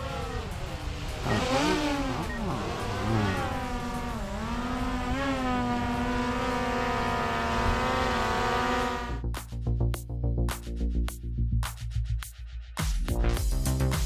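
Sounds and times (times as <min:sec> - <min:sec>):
drone propellers whining: 0:00.0 - 0:09.2.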